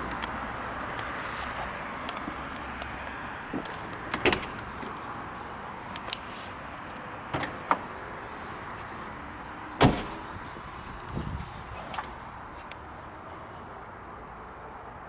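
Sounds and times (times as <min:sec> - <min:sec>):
thump: 0:09.8 - 0:10.3.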